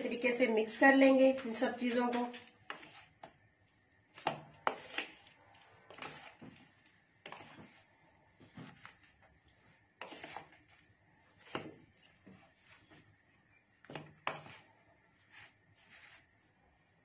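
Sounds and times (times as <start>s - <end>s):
utensils scraping plastic bowl: 2.0s - 3.2s, 4.2s - 7.8s, 10.0s - 10.7s.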